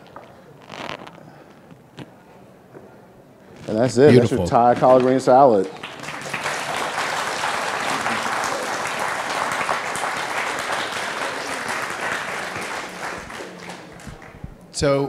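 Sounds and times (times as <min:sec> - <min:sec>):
audience applauding: 0:04.4 - 0:14.6.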